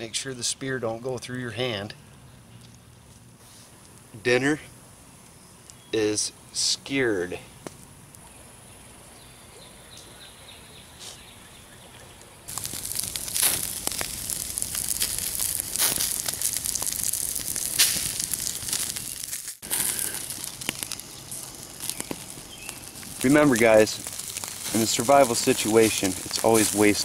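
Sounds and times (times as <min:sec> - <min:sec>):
campfire crackling and popping: 0:00.0 - 0:06.0, 0:11.9 - 0:27.0.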